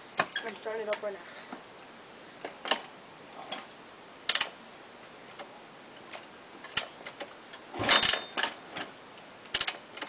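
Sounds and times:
motorcycle kick-starter clicking: 2.4s - 2.9s, 4.3s - 4.6s, 6.1s - 10.0s.

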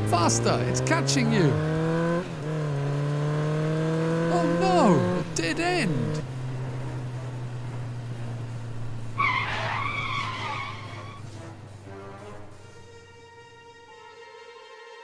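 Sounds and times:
motorbike engine hum: 0.0s - 13.0s
tyre screech: 9.2s - 11.4s.

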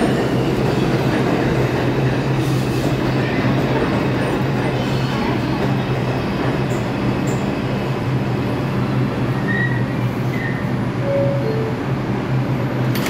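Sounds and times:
subway train humming: 0.0s - 13.0s
high beeps: 11.0s - 12.0s.

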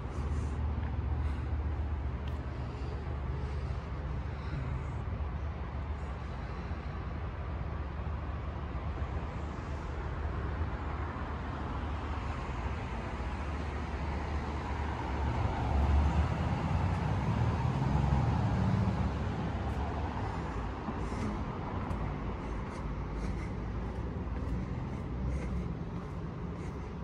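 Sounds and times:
city traffic hum: 0.0s - 27.0s
vehicle passing: 14.4s - 27.0s.

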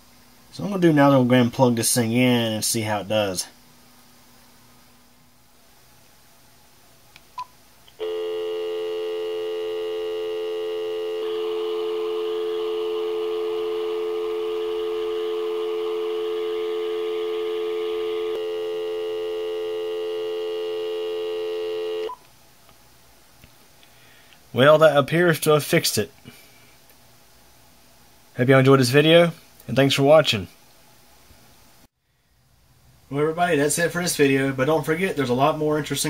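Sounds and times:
dial tone: 8.0s - 22.2s.

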